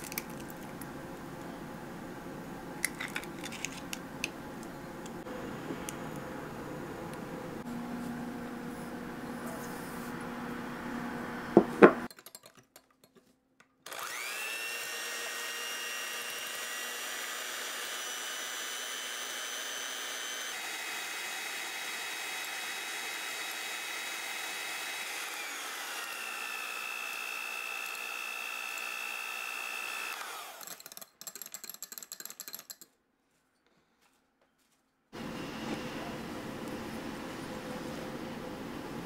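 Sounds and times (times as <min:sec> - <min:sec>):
electric hand mixer whining: 0:13.9 - 0:30.8.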